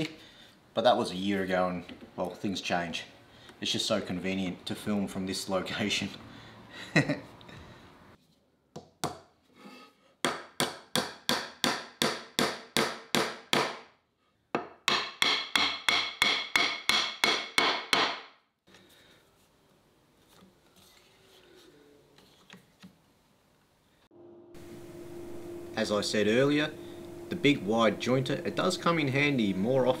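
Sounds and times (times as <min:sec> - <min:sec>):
hammer knocking wood joints: 0:10.2 - 0:13.8, 0:14.6 - 0:18.3.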